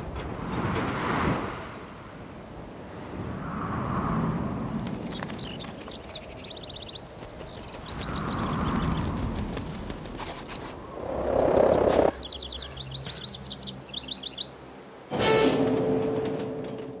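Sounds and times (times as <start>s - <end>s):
small birds chirping: 4.6s - 14.6s.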